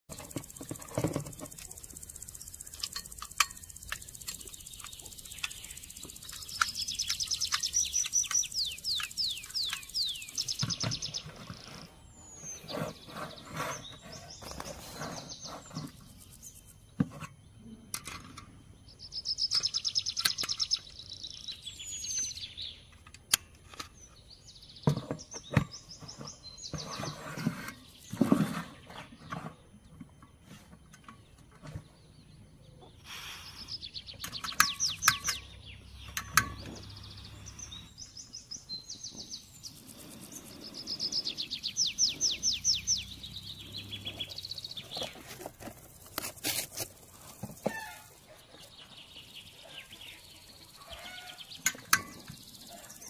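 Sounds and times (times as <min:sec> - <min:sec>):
birds chirping: 0:00.1 - 0:53.0
metal clicks of camping stove: 0:02.6 - 0:09.9, 0:22.9 - 0:23.9, 0:34.2 - 0:35.5, 0:36.1 - 0:36.8, 0:51.6 - 0:52.3.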